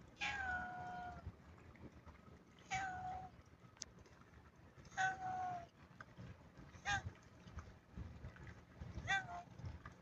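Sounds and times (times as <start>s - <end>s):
cat meowing: 0.2s - 1.2s.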